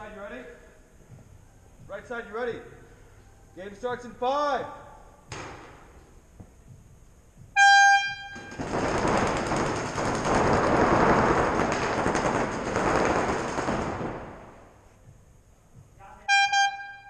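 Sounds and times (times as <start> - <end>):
paintball markers firing rapidly: 8.4 - 14.6.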